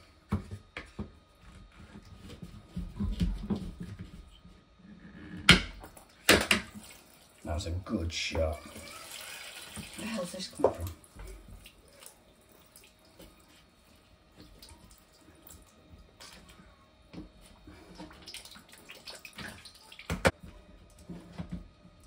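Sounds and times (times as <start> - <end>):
water trickling and dripping: 8.8 - 13.7, 14.4 - 16.6, 17.9 - 20.3.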